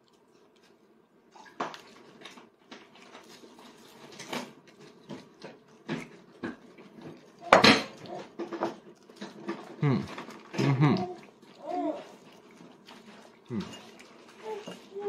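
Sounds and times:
dishes and tableware clinking: 0:07.4 - 0:09.7, 0:13.5 - 0:15.0.

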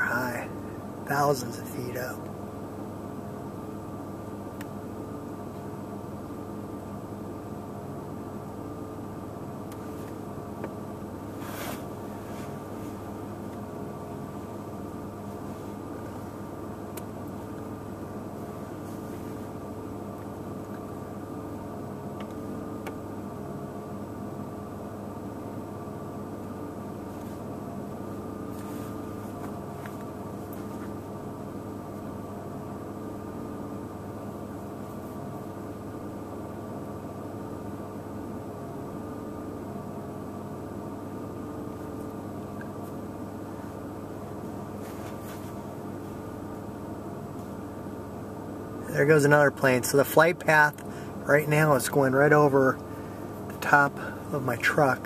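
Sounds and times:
truck engine humming: 0:00.0 - 0:03.6.

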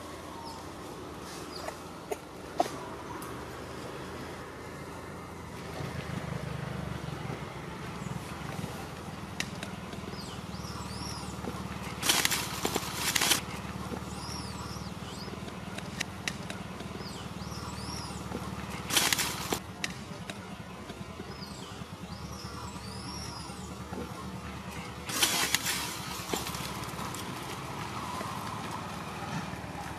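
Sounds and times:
scattered clicks: 0:11.9 - 0:13.5, 0:18.6 - 0:21.0.

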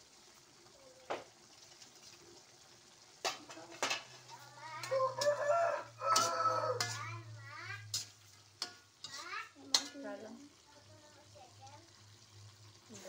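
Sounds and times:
beans sizzling in a wok: 0:00.0 - 0:13.0
metal spatula clanking on wok: 0:03.2 - 0:10.2
rooster crowing: 0:04.9 - 0:07.0.

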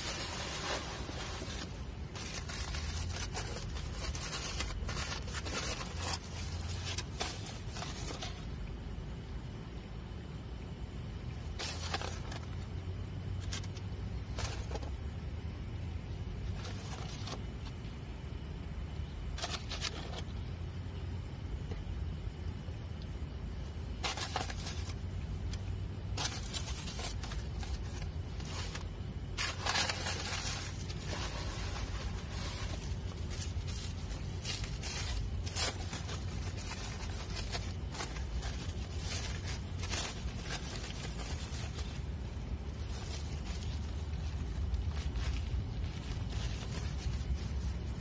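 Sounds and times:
steady low rumble: 0:00.0 - 0:48.0.

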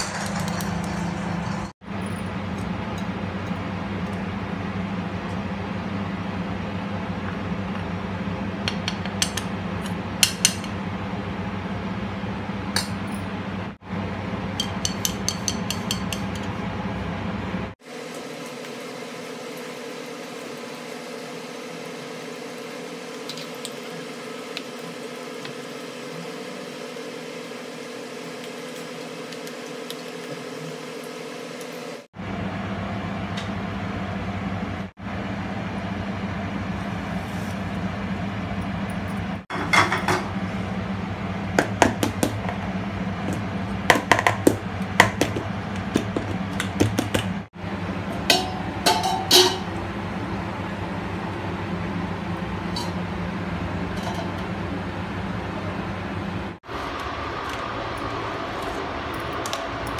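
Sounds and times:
steady background hum: 0:00.0 - 0:59.9.

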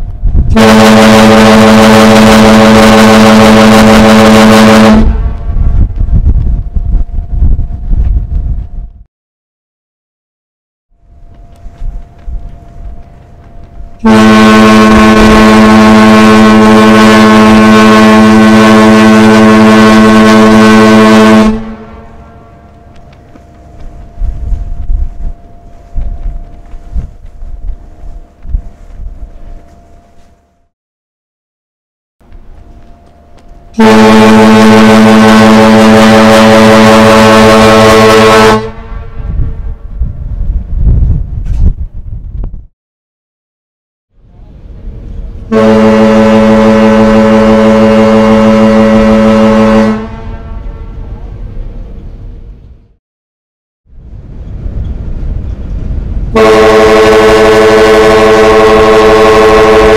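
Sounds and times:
ship whistle long blast: 0:00.5 - 0:05.5, 0:14.0 - 0:22.6, 0:33.7 - 0:39.2, 0:45.5 - 0:51.1, 0:56.3 - 0:59.9.

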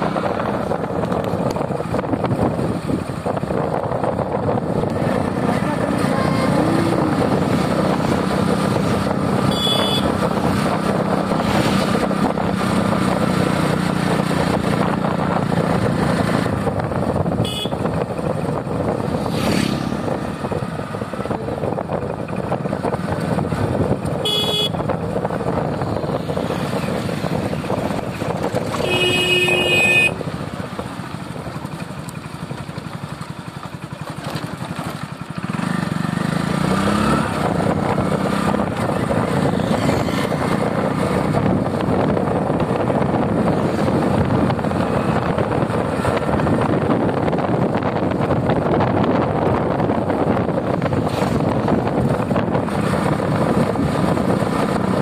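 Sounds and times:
wind rushing over microphone: 0:00.0 - 0:30.6, 0:35.4 - 0:55.0
motorcycle engine running: 0:00.0 - 0:55.0
motorcycle horn beeps: 0:09.4 - 0:10.3, 0:17.4 - 0:18.0, 0:24.2 - 0:24.9, 0:28.7 - 0:30.2.

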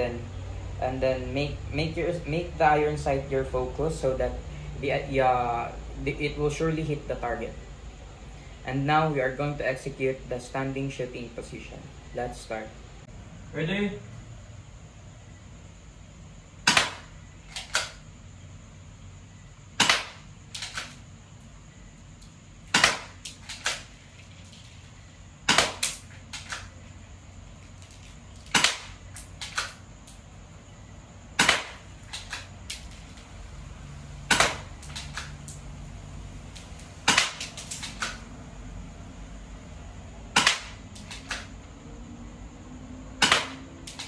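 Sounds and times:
pistol shots: 0:16.6 - 0:18.0, 0:19.8 - 0:21.0, 0:22.7 - 0:23.9, 0:25.5 - 0:26.7, 0:28.4 - 0:29.8, 0:31.4 - 0:32.8, 0:34.3 - 0:35.3, 0:37.0 - 0:38.2, 0:40.4 - 0:41.5, 0:43.2 - 0:44.0.

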